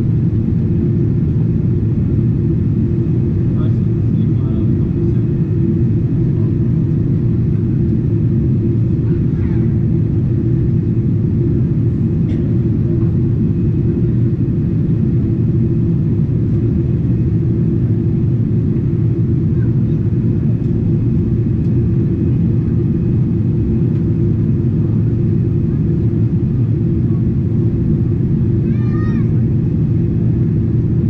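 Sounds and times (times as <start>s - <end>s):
airplane cabin roar: 0.0s - 31.0s.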